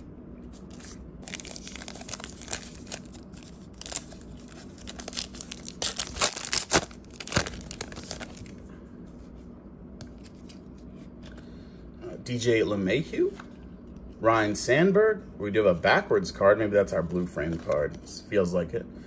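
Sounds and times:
wrapper crinkling and tearing: 0.6s - 8.6s.

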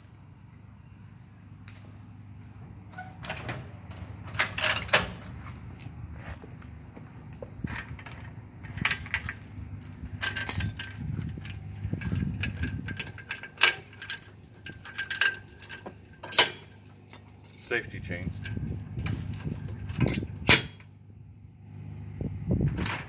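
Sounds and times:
chain clinking: 7.2s - 17.7s.

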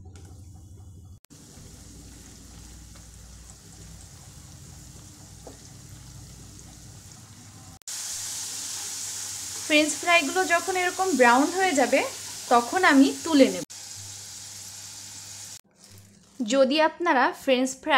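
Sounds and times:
food sizzling in hot oil: 1.3s - 16.7s.

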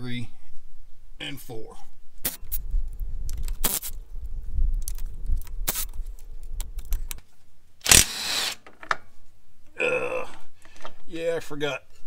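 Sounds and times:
power tool motor hum: 7.8s - 8.6s.

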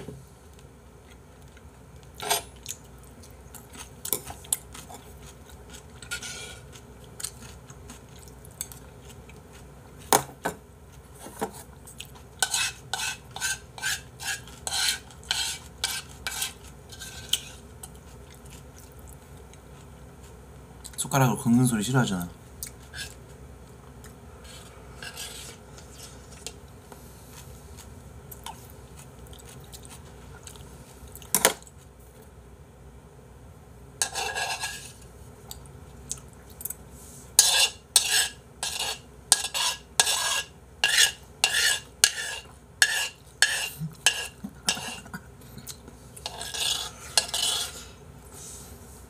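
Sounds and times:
spoon scraping a bowl: 4.1s - 7.6s, 12.4s - 18.0s, 22.8s - 23.2s, 24.4s - 26.6s, 34.0s - 35.0s, 37.4s - 45.2s, 46.1s - 48.0s.

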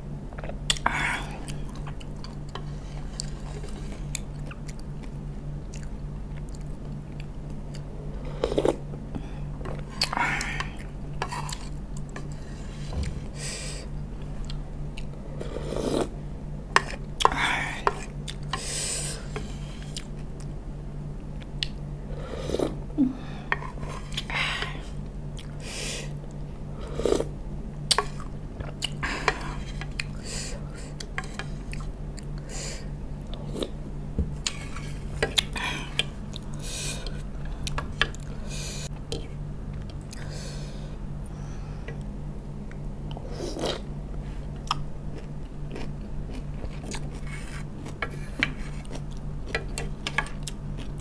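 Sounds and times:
steady low hum: 0.0s - 51.0s
chewing: 44.6s - 51.0s.

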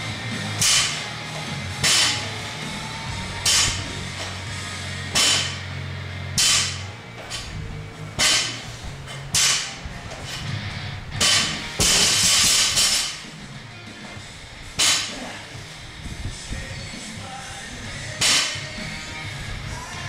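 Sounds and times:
background music: 0.0s - 20.0s
barbell noise bursts: 0.5s - 1.1s, 1.8s - 4.5s, 5.1s - 5.7s, 6.3s - 10.6s, 11.2s - 13.4s, 14.7s - 15.9s, 18.1s - 19.0s.

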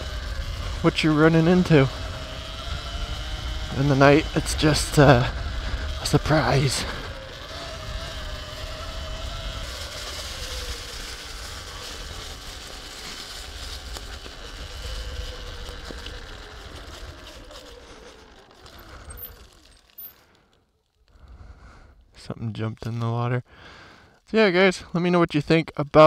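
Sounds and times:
electric motor whine: 0.0s - 20.3s
tyres rolling on dirt trail: 0.0s - 26.0s.

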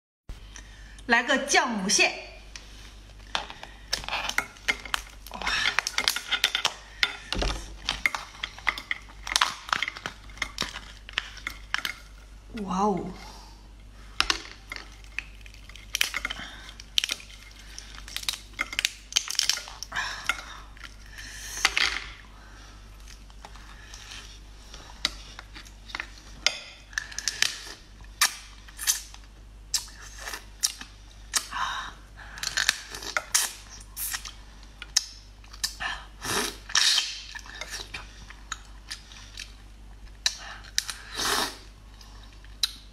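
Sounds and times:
crab shells crackling and snapping: 3.1s - 12.3s, 14.2s - 22.2s, 25.0s - 31.6s, 32.3s - 35.8s, 36.6s - 41.1s
wet sucking sounds: 40.9s - 41.7s.

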